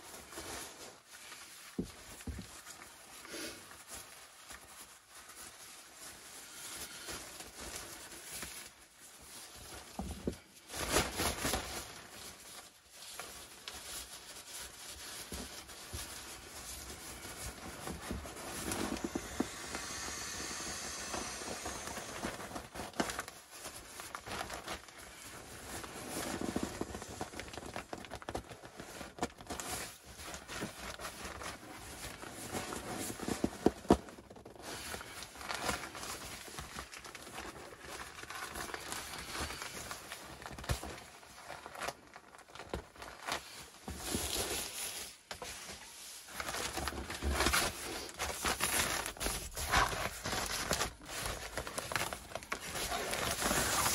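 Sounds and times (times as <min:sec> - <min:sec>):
nylon fabric rustling: 0:00.0 - 0:33.5, 0:34.3 - 0:53.9
hiss of air: 0:18.8 - 0:22.4.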